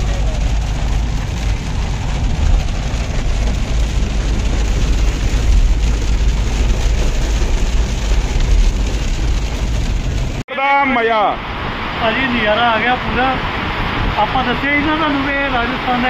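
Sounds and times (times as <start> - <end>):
car driving rumble: 0.0 - 10.4
heavy rain on car roof: 0.0 - 16.0.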